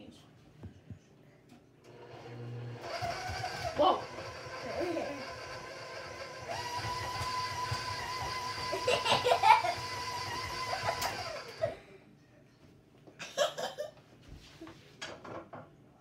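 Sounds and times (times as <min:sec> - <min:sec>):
stand mixer motor whirring: 0:01.9 - 0:11.7
high mixer whine: 0:01.9 - 0:11.8.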